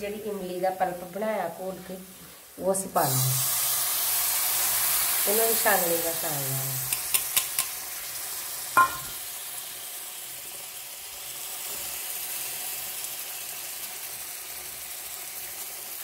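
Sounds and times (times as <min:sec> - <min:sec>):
masala sizzling in oil: 0:00.0 - 0:16.0
spoon striking metal strainer: 0:08.8 - 0:09.2.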